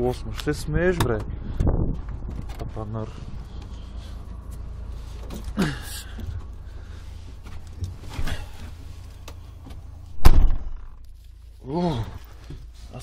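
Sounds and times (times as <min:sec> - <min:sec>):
low steady rumble: 0:00.0 - 0:13.0
knocks and thumps in truck cab: 0:09.6 - 0:11.0.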